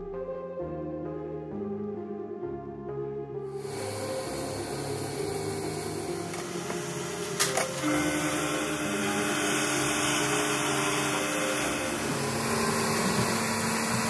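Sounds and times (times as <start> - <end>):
metal lathe running: 3.6 - 14.0
steady hum: 3.6 - 14.0.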